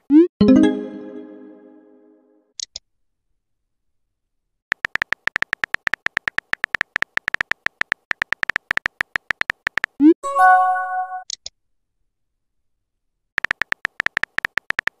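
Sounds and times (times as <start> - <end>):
chiming chord: 0.4 - 2.3.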